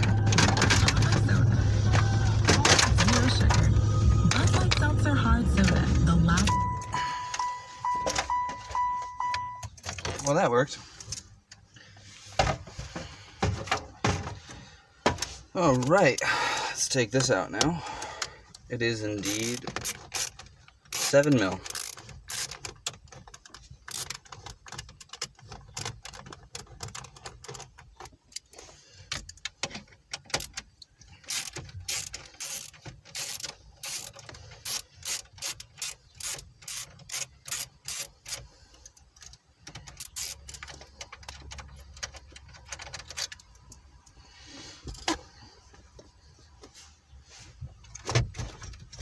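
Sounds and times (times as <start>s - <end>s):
hand ratchet clicking: 19.2s - 22.7s, 23.9s - 24.2s, 31.2s - 38.4s, 39.9s - 40.6s.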